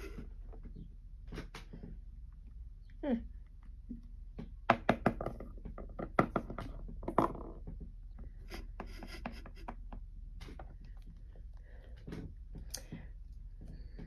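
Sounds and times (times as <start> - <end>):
plastic toy tapping on wood: 4.4 - 7.8.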